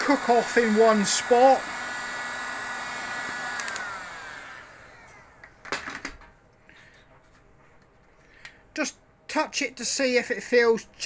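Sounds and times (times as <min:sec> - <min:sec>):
heat gun fan whine: 0:00.0 - 0:06.0.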